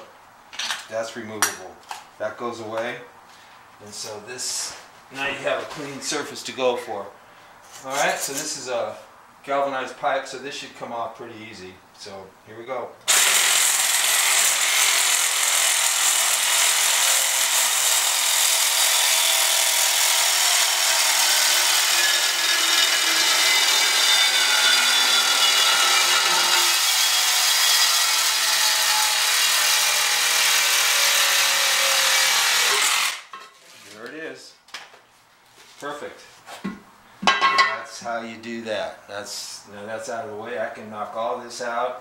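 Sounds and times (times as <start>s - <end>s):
reciprocating saw cutting steel pipe: 13.1s - 33.2s.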